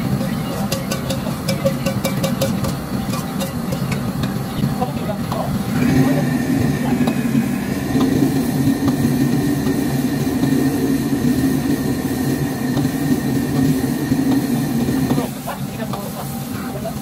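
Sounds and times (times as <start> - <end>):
ladle clinking against wok: 0.0 - 4.5
gas burner and extraction roar: 0.0 - 17.0.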